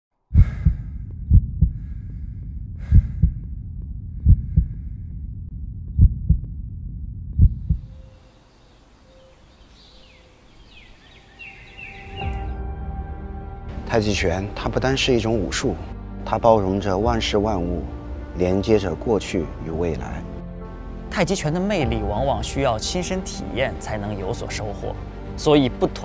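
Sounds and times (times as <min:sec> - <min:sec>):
deep rumble: 0:00.3 - 0:08.1
heartbeat thumps: 0:00.4 - 0:08.0.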